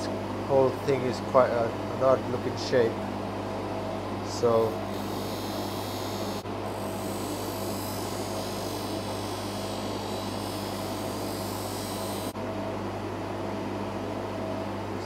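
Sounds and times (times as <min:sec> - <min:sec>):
polishing motor humming: 0:04.4 - 0:12.4.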